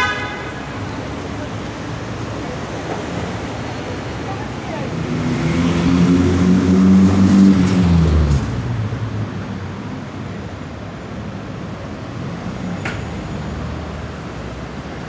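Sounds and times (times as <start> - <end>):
street traffic noise: 0.0 - 15.0
car engine passing by: 4.8 - 9.7.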